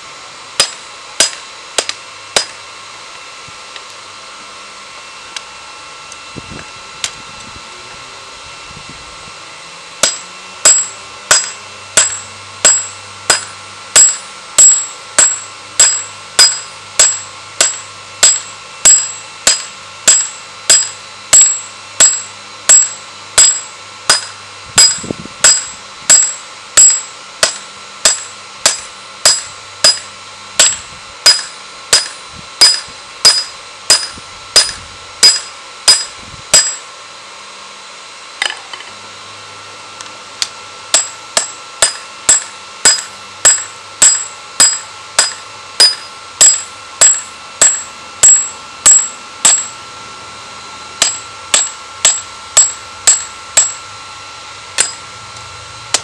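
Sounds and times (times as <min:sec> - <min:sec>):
hammer ringing on anvil: 0:00.6 - 0:02.6, 0:10.0 - 0:36.9, 0:40.9 - 0:49.9, 0:51.0 - 0:53.8, 0:54.8 - 0:55.1.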